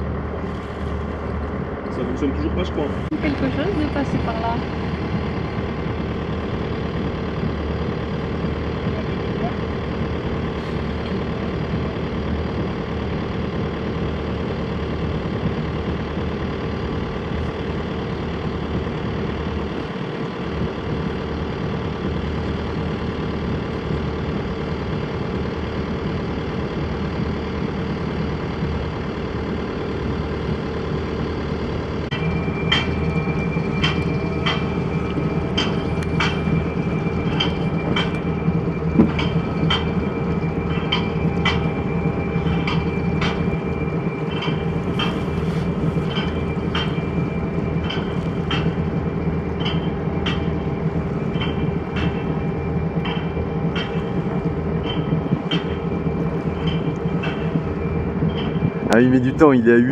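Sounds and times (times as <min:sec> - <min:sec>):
boat engine running: 0:00.0 - 0:59.9
sharp ringing clicks: 0:32.1 - 0:59.8.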